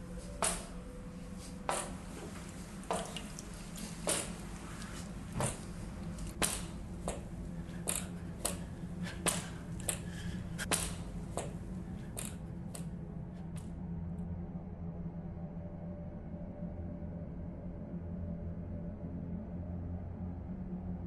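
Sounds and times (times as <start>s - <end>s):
steady low hum: 0.0s - 21.0s
sharp irregular clicks: 12.2s - 12.9s.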